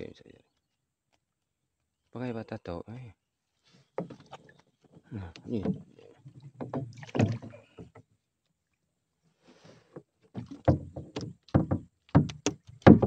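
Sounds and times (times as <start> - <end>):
water splashing: 5.4 - 8.0.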